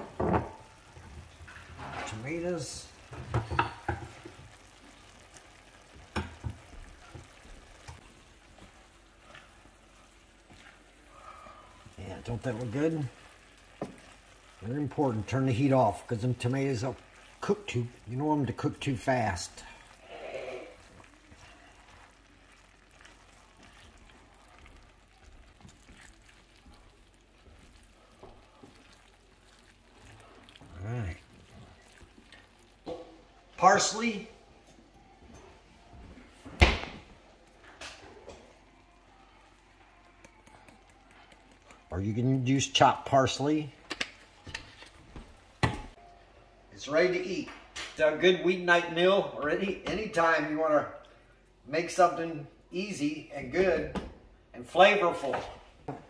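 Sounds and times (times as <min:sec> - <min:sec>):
spoon stirring food in skillet: 0:00.0 - 0:46.0.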